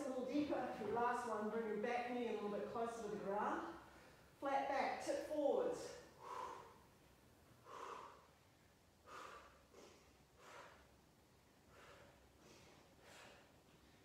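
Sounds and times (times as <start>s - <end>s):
person breathing softly: 6.2s - 6.9s, 7.6s - 8.4s, 9.0s - 11.0s, 11.6s - 14.0s.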